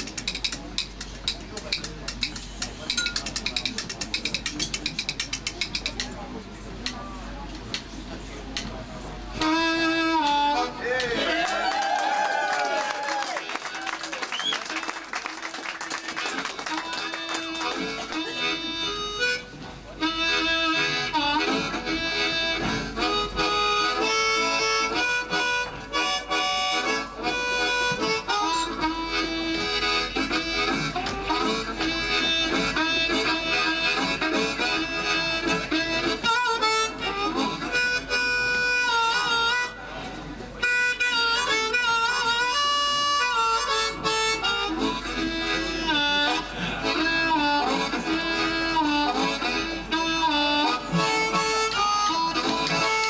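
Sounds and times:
amplified blues harmonica solo: 0:09.4 - 0:10.8, 0:16.6 - 0:39.9, 0:40.5 - 0:53.0
backing band: 0:13.6 - 0:39.7, 0:40.6 - 0:53.0.

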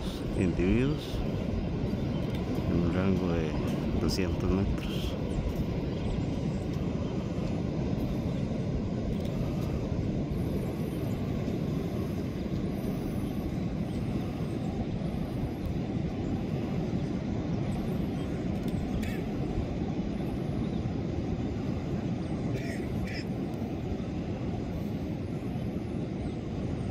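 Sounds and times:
ocean surf breaking: 0:00.0 - 0:26.9.

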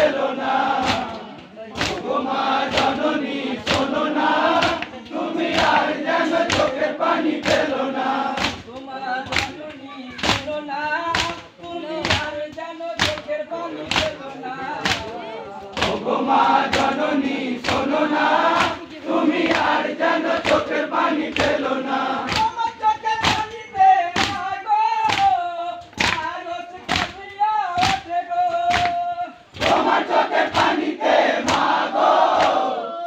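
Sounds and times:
chest-beating slaps: 0:00.0 - 0:32.7
crowd of men singing: 0:00.0 - 0:33.0.

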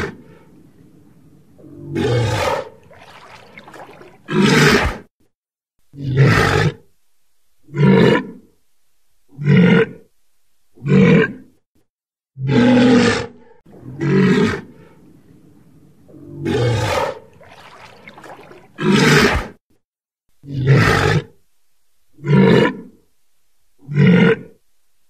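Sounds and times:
walrus grunting roars: 0:01.6 - 0:05.0, 0:12.4 - 0:14.7, 0:16.1 - 0:19.5.

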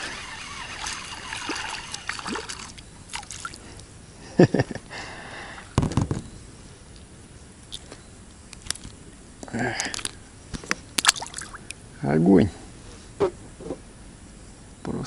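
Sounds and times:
fish splashing at the surface: 0:00.2 - 0:03.6, 0:11.0 - 0:11.8.

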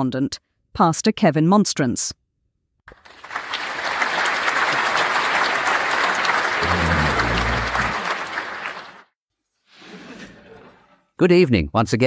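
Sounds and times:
audience applause: 0:02.9 - 0:09.1.

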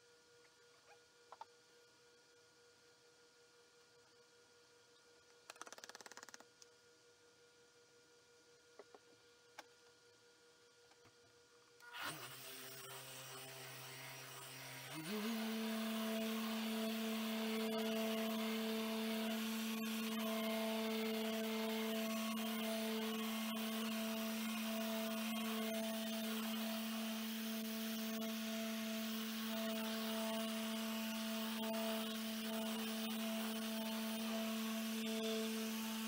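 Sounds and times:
electric polisher humming: 0:11.9 - 0:36.0.

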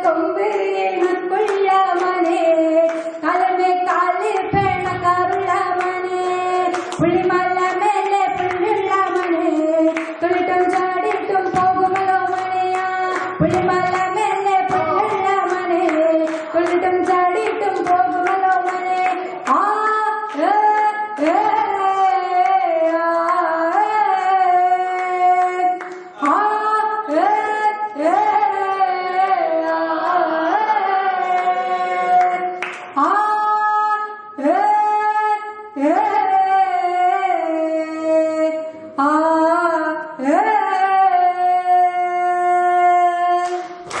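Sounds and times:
woman singing folk song: 0:00.0 - 0:30.6.

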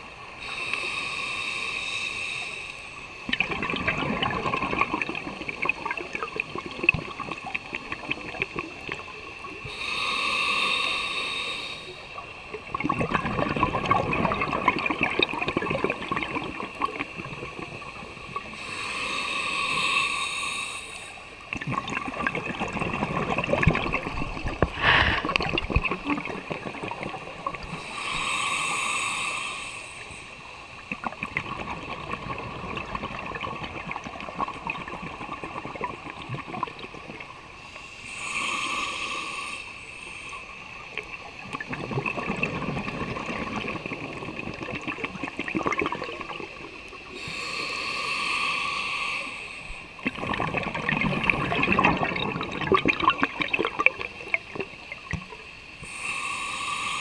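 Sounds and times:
regulator inhale hiss: 0:00.4 - 0:03.2, 0:09.6 - 0:12.2, 0:18.4 - 0:21.5, 0:24.5 - 0:25.6, 0:27.6 - 0:30.9, 0:37.5 - 0:41.4, 0:46.8 - 0:50.0, 0:55.3 - 0:57.0
exhaust bubbles crackling: 0:41.4 - 0:46.8, 0:50.0 - 0:55.3.

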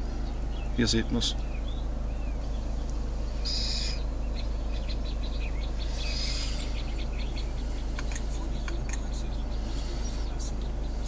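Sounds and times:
low steady hum: 0:00.0 - 0:11.0
young owls calling: 0:00.0 - 0:11.0.

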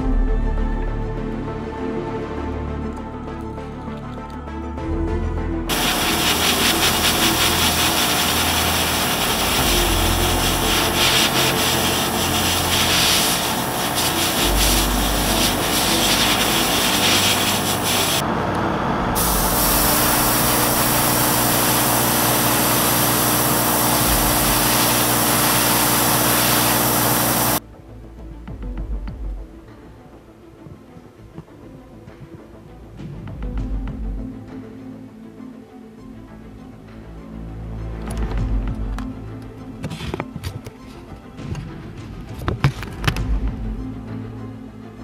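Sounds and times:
rubbing and scraping plastic parts: 0:05.7 - 0:18.2, 0:39.8 - 0:40.8.

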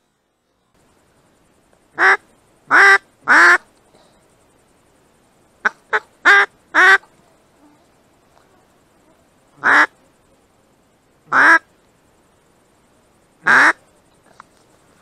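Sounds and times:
duck quacking loudly: 0:02.0 - 0:03.6, 0:05.6 - 0:07.1, 0:09.6 - 0:09.9, 0:11.3 - 0:11.6, 0:13.4 - 0:13.8.

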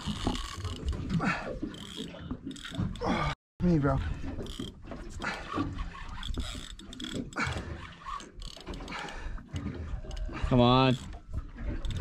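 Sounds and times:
fishing reel ratcheting clicks: 0:06.1 - 0:07.2.

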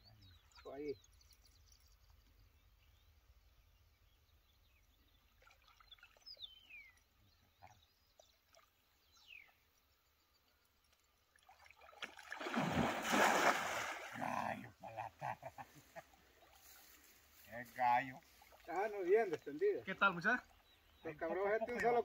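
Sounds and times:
faint bird chirps: 0:00.0 - 0:11.2
water splashing from cast net: 0:11.4 - 0:14.4.

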